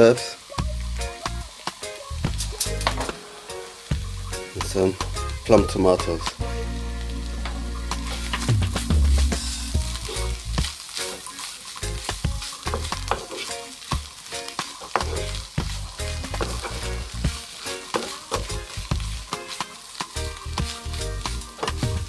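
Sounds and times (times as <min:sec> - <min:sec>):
food sizzling in a frying pan: 0:00.0 - 0:22.0
wooden spoon scraping a pan: 0:12.4 - 0:21.9.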